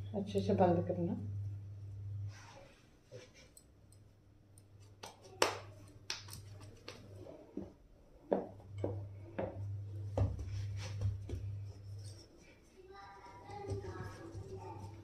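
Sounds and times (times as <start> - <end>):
low hum: 0.0 - 2.8.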